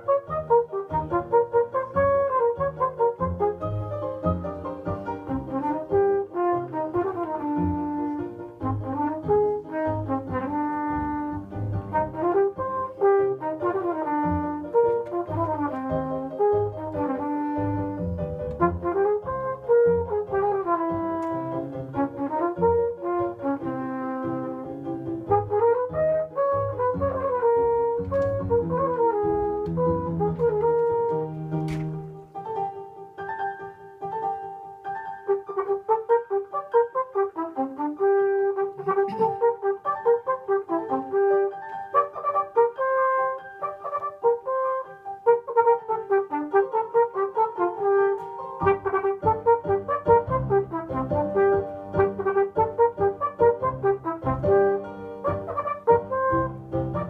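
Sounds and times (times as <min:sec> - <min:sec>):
flugelhorn melody: 0:00.0 - 0:32.6, 0:35.0 - 0:57.0
piano accompaniment: 0:00.0 - 0:57.0.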